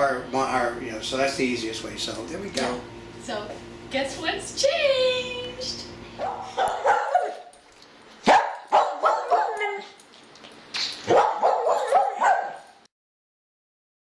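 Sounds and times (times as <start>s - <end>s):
dog barking: 6.2s - 7.5s, 8.2s - 9.8s, 11.1s - 12.7s.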